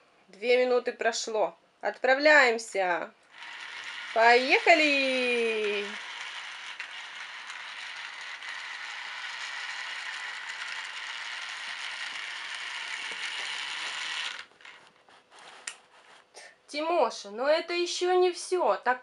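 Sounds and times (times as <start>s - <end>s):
toy train whirring clatter: 3.3s - 15.8s.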